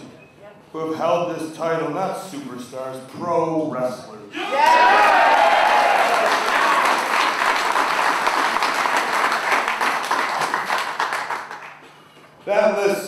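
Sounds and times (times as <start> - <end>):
crowd applauding: 4.5 - 11.9.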